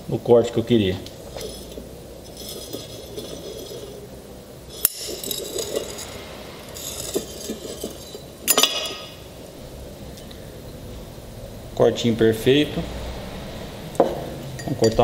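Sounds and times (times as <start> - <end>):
glass bottle scraping and clinking: 1.2 - 4.1, 4.7 - 9.3, 14.6 - 15.0
glass bottle cracking: 4.7 - 6.2, 6.8 - 9.2.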